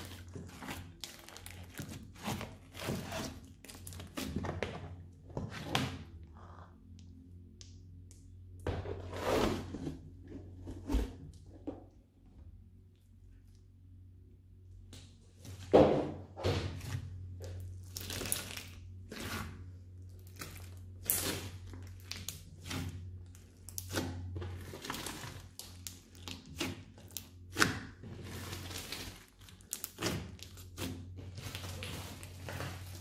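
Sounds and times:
slime squishing and crackling: 0:00.0 - 0:04.8, 0:17.3 - 0:33.0
low steady hum: 0:00.0 - 0:33.0.

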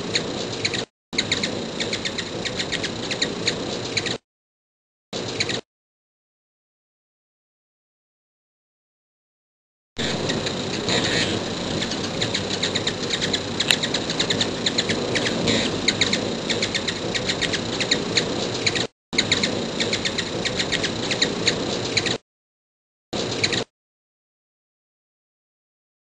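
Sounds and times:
hummingbird wings humming: 0:00.0 - 0:04.2, 0:10.0 - 0:22.2
hummingbirds chipping: 0:00.0 - 0:04.2, 0:10.0 - 0:22.2.

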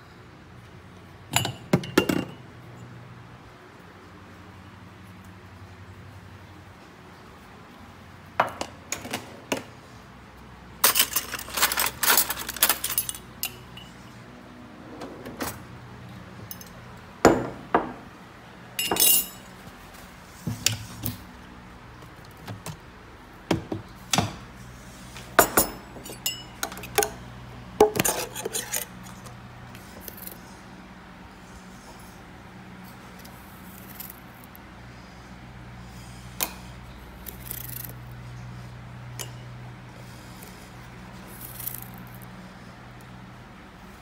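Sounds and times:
crockery and utensils clinking: 0:18.8 - 0:19.5, 0:25.4 - 0:27.1.

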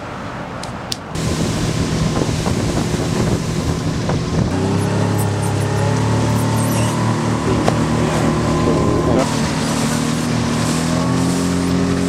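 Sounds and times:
water rushing past boat: 0:00.0 - 0:12.0
wind rushing: 0:01.1 - 0:05.1, 0:07.2 - 0:12.0
outboard motor running: 0:01.2 - 0:12.0.

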